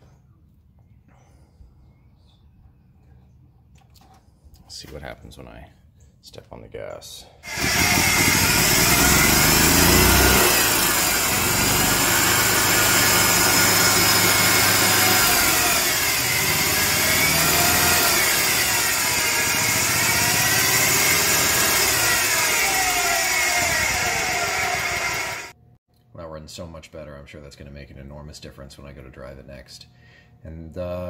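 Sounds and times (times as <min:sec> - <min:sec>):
golf cart engine revving: 0:07.5 - 0:25.6.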